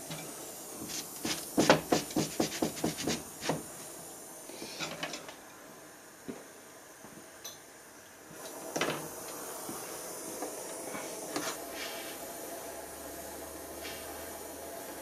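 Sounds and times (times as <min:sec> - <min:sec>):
gas torch hissing: 0:00.0 - 0:05.1, 0:08.3 - 0:15.0.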